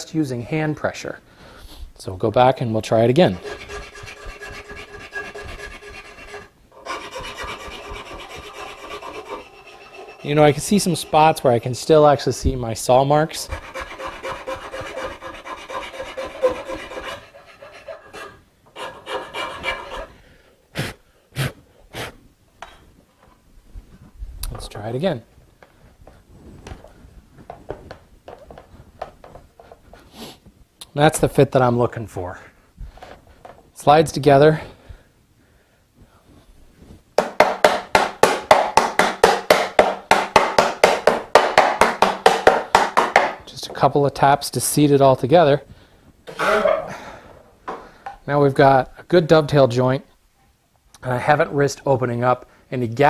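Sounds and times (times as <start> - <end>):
puffs of breath blowing: 1.3 - 1.9, 20.1 - 22.2
file rasping on wood: 3.2 - 11.8, 13.4 - 20.1.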